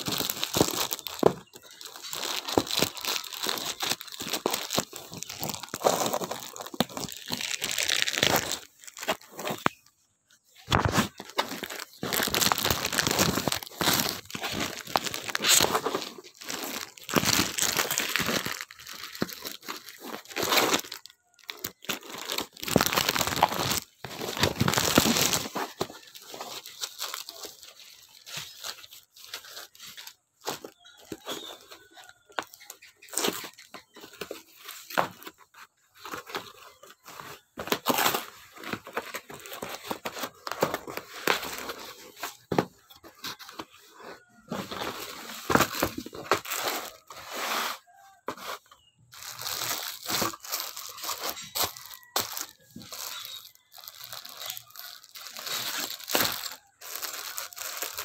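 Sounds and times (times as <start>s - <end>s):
plastic packaging tearing and rustling: 0.0s - 9.9s, 10.6s - 58.0s.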